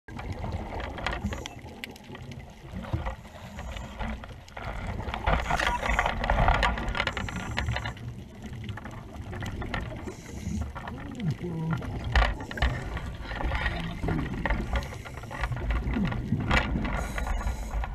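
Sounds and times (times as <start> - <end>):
crackling clicks underwater: 0.1 - 17.9
muffled underwater water rumble: 0.1 - 17.9
scratchy rustle through seaweed: 2.7 - 17.9.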